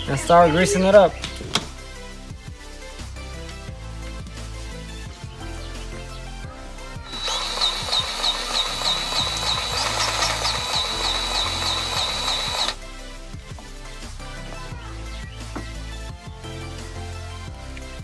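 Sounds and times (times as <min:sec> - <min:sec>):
background music: 0:00.0 - 0:18.0
grease gun motor whining: 0:07.1 - 0:12.8.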